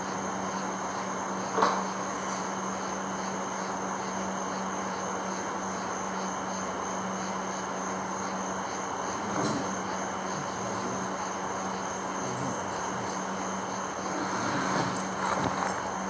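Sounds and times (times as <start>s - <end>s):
insects trilling: 0.0s - 16.0s
pulsing insect chirp: 0.0s - 16.0s.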